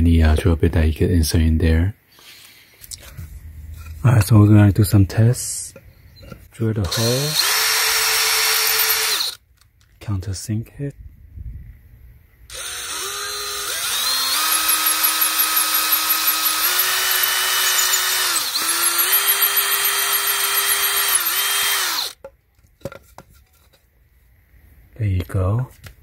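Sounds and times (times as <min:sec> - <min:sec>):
drill motor whine: 0:06.9 - 0:09.4, 0:12.5 - 0:22.2.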